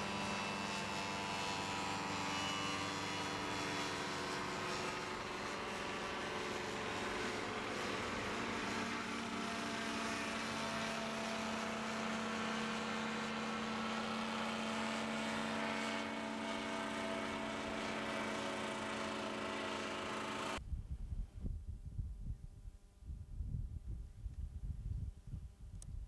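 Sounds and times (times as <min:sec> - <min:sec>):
light aircraft engine droning: 0:00.0 - 0:20.6.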